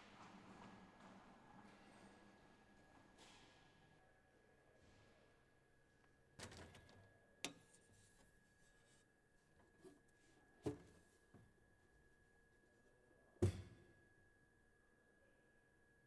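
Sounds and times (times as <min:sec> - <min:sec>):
faint high hum: 0:03.8 - 0:16.0.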